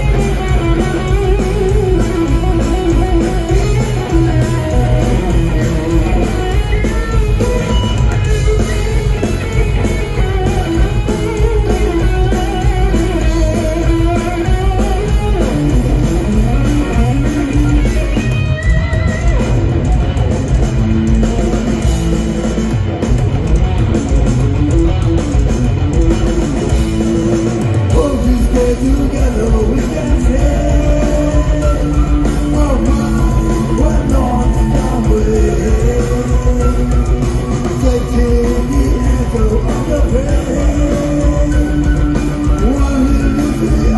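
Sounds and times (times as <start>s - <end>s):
live metal band playing: 0.0s - 43.9s
melodic line over band: 0.0s - 43.9s.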